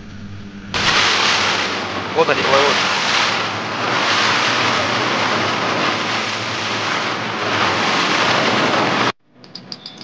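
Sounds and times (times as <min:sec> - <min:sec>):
low motor hum: 0:00.0 - 0:09.5
bow wave rushing and splashing: 0:00.7 - 0:09.2.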